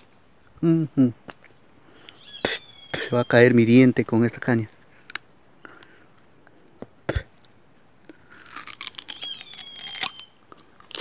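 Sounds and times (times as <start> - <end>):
sugarcane crunching when chewed: 7.1 - 11.0.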